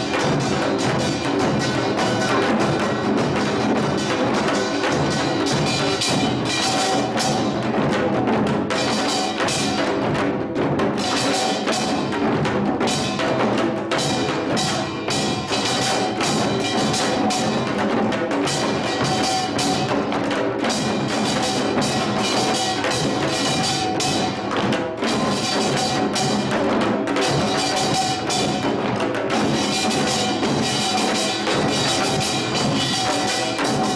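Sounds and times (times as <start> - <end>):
barrel drum beating: 0.0 - 33.9.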